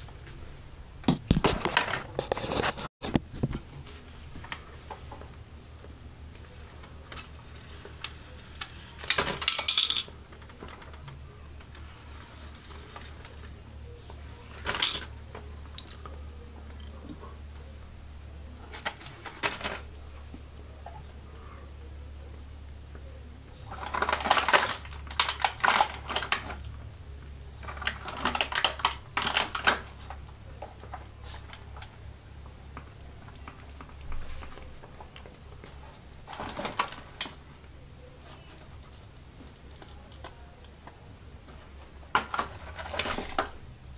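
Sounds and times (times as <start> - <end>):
steady low hum: 0.0 - 43.9
plastic bag and paper crinkling: 1.1 - 5.3, 18.6 - 20.4, 23.5 - 26.8, 27.5 - 32.0, 32.7 - 43.7
plastic mechanism clicking and rattling: 8.0 - 11.8, 23.7 - 26.8, 27.6 - 31.0.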